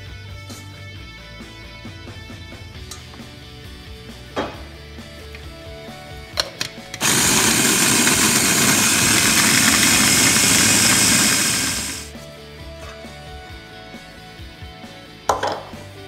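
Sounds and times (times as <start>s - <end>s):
food chopper motor running: 7.0s - 12.1s.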